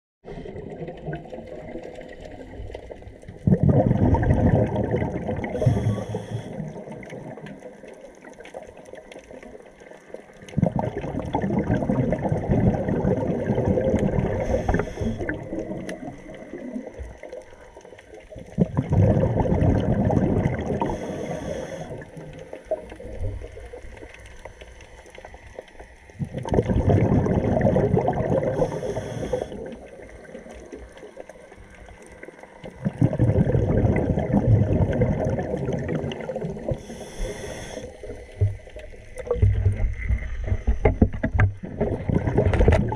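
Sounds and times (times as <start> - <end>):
air bubbling underwater: 3.3 - 7.5, 10.5 - 16.9, 18.4 - 22.1, 26.2 - 29.9, 32.6 - 37.8, 38.4 - 42.9.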